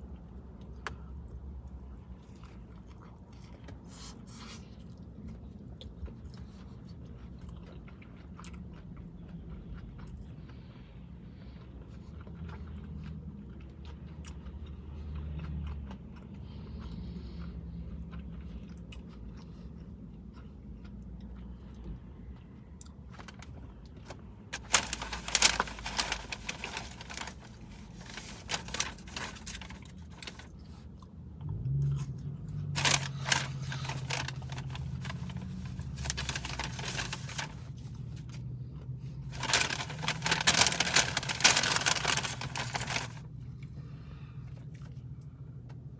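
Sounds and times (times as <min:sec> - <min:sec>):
chewing crispy food: 0:00.0 - 0:45.9
low steady hum: 0:00.0 - 0:45.9
paper packaging crinkling: 0:23.2 - 0:30.5, 0:32.7 - 0:38.2, 0:39.3 - 0:43.3.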